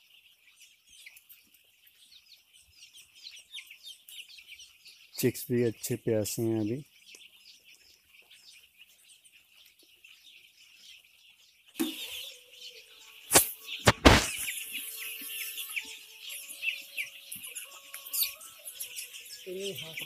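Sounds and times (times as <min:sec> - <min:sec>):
chicks peeping: 0:00.0 - 0:20.0
loud knocks: 0:13.8 - 0:14.4.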